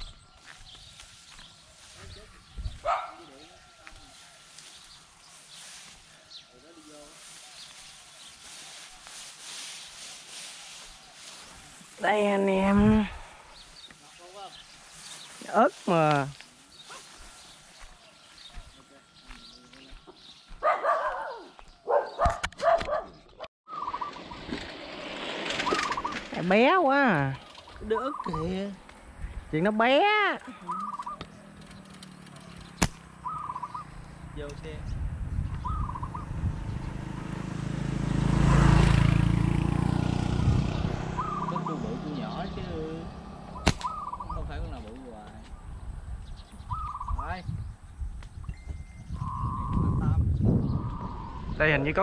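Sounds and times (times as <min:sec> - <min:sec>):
bird trilled call: 0:23.7 - 0:24.4, 0:25.6 - 0:26.6, 0:27.8 - 0:28.8, 0:30.5 - 0:31.4, 0:32.7 - 0:34.0, 0:35.6 - 0:36.3, 0:41.2 - 0:42.3, 0:43.5 - 0:44.5, 0:46.6 - 0:47.4, 0:48.7 - 0:51.6
high trilling call: 0:27.8 - 0:28.8, 0:30.0 - 0:31.3, 0:33.2 - 0:34.0, 0:41.1 - 0:42.5, 0:43.4 - 0:44.5
falling animal calls: 0:30.5 - 0:31.3
sharp clicks: 0:30.9 - 0:33.1, 0:43.6 - 0:43.9
motorbike engine running: 0:30.9 - 0:43.7.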